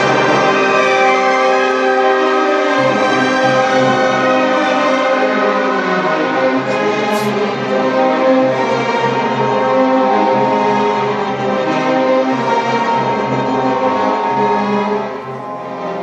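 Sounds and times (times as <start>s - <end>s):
orchestra playing: 8.8s - 16.0s.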